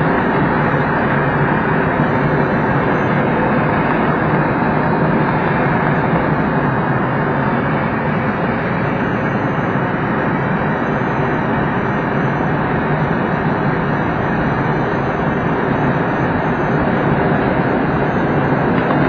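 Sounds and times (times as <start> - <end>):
rushing airflow around canopy: 0.0 - 19.0.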